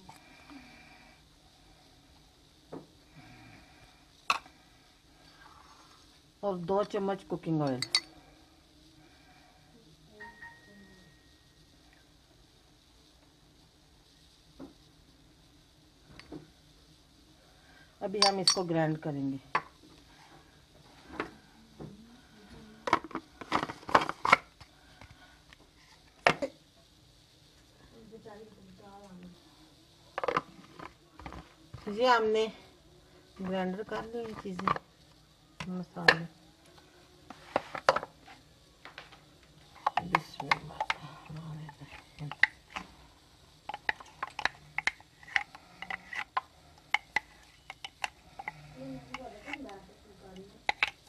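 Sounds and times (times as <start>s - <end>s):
plastic jar lid clicking: 50.7s - 51.0s.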